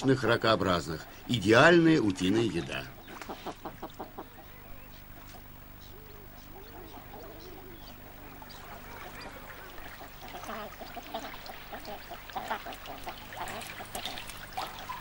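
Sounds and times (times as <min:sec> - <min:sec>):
ducks calling: 0:00.0 - 0:15.0
meltwater dripping and trickling: 0:08.5 - 0:15.0.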